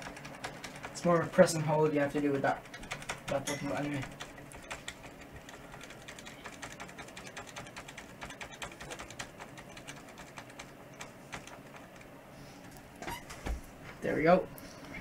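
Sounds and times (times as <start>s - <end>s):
keyboard key clicking rapidly: 0.0s - 1.4s, 2.2s - 12.1s.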